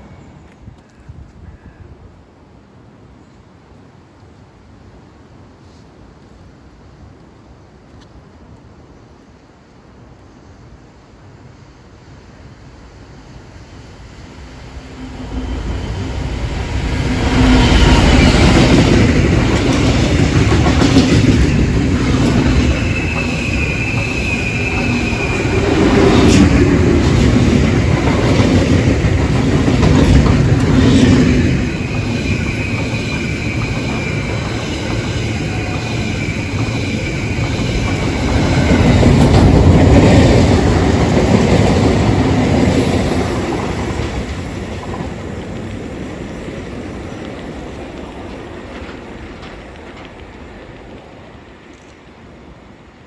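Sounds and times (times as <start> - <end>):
diesel locomotive engine rumbling: 11.5 - 53.0
train wheels clattering on rails: 16.1 - 52.0
wheel squeal: 22.6 - 25.8.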